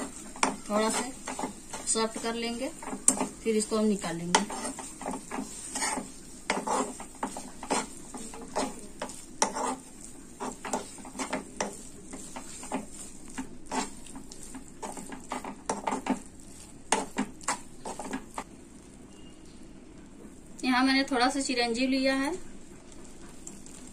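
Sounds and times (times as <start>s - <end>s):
metal spoon scraping frying pan: 0.0s - 16.3s.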